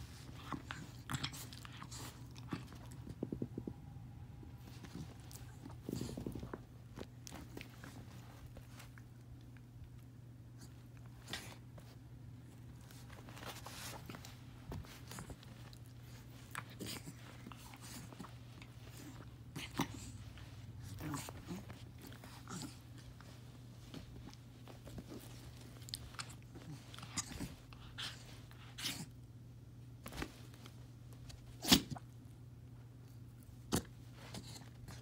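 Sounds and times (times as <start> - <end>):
low hum: 0.0 - 10.1
dog rolling on carpet: 4.6 - 8.9, 12.6 - 28.8.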